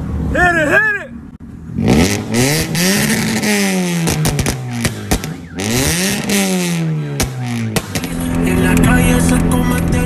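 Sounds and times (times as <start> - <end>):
car engine revving: 1.5 - 10.0
sharp exhaust cracks: 1.9 - 9.6.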